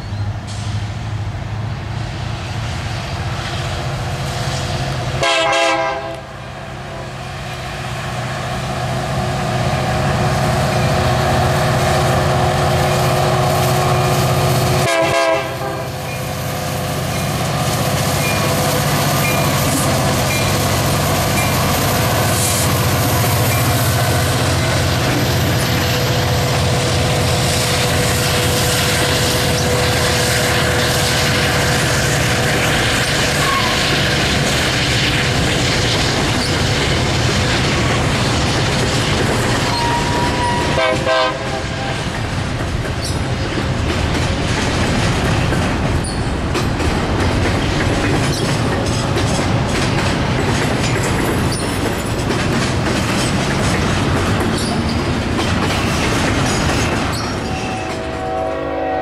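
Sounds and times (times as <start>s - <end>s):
train wheels rumbling on rail: 0.0s - 59.0s
wheel squeal: 39.6s - 40.8s, 46.0s - 46.3s, 57.0s - 58.0s.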